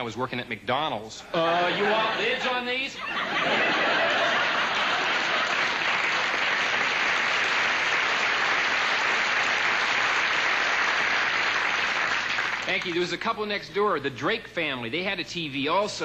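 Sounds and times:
studio audience applauding: 0:03.4 - 0:13.2.

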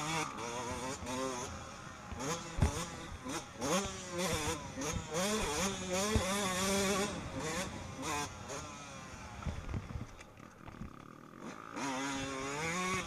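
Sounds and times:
motocross bike engine revving: 0:00.0 - 0:10.1, 0:10.9 - 0:13.0.

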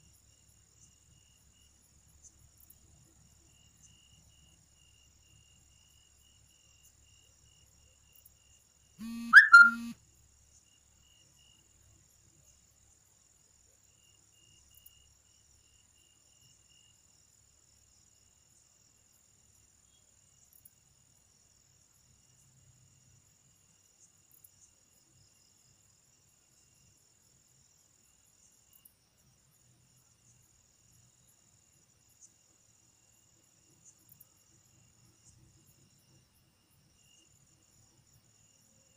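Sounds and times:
upward sweeping sound: 0:09.2 - 0:09.9.

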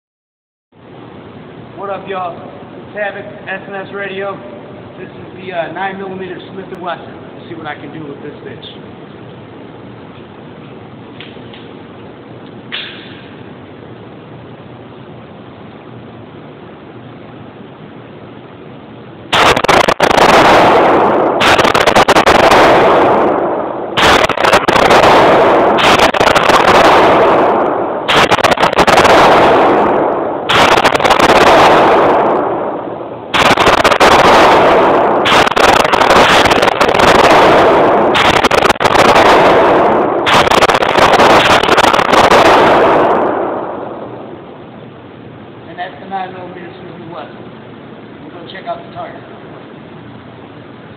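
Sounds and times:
pistol shots echoing indoors: 0:19.3 - 0:44.3.

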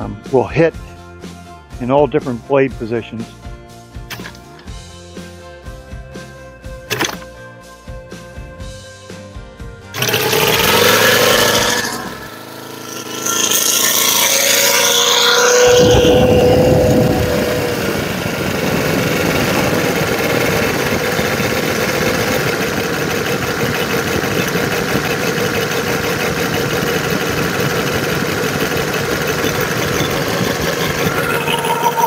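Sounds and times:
model airplane engine running: 0:10.0 - 0:32.0.

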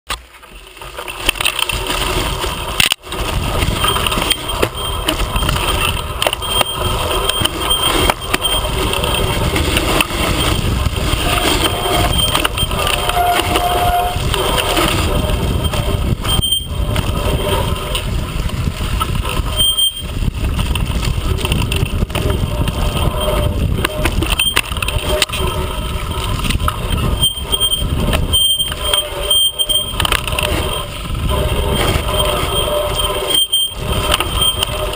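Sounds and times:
bike rattling over bumps: 0:00.1 - 0:34.9
tyres rolling over dirt and leaves: 0:00.1 - 0:34.9
wind rushing: 0:02.5 - 0:28.4.

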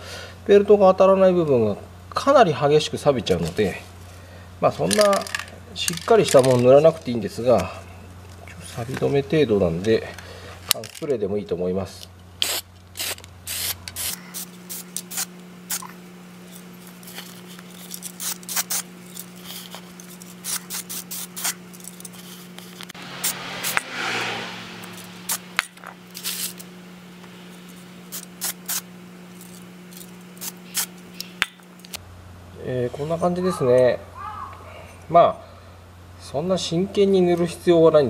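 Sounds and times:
faint steady hum: 0:00.0 - 0:38.0
aerosol spray bursts: 0:12.4 - 0:15.9, 0:18.1 - 0:19.7, 0:20.3 - 0:21.6, 0:25.2 - 0:26.6, 0:28.1 - 0:28.8, 0:30.4 - 0:31.0.

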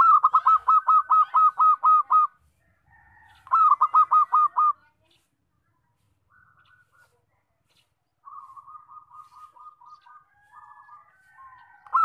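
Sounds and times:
dove cooing: 0:00.0 - 0:02.4, 0:03.2 - 0:04.8, 0:08.2 - 0:12.0.

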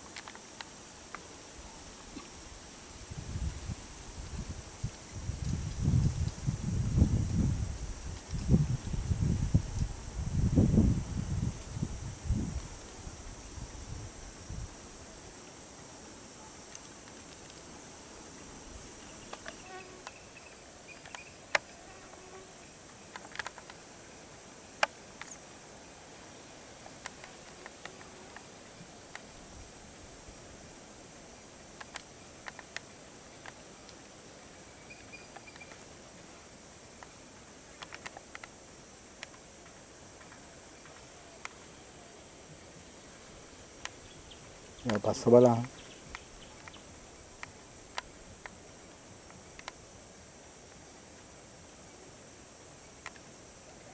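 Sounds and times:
insect chorus drone: 0:00.0 - 0:53.9
faint chirps: 0:18.2 - 0:23.2, 0:34.6 - 0:35.8, 0:40.2 - 0:47.4
sharp clicks: 0:37.8 - 0:38.6, 0:44.8 - 0:46.8.

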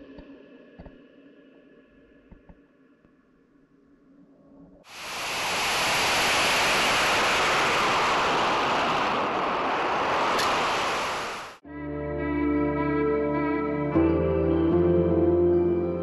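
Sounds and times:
air rushing over camera: 0:04.9 - 0:11.6.

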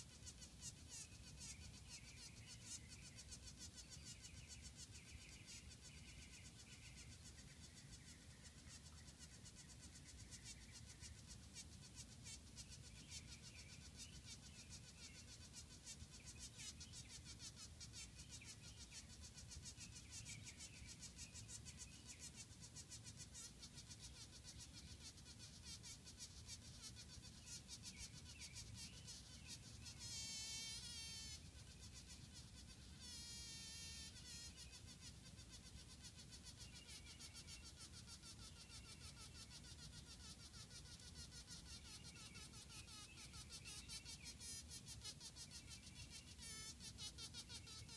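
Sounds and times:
faint chirping: 0:00.0 - 0:47.9
bee buzzing in bursts: 0:21.4 - 0:47.9.

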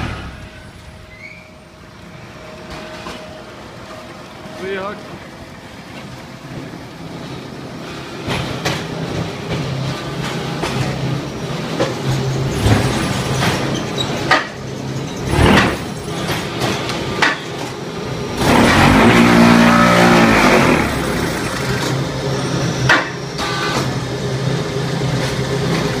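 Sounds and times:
machine hum: 0:17.9 - 0:22.7.

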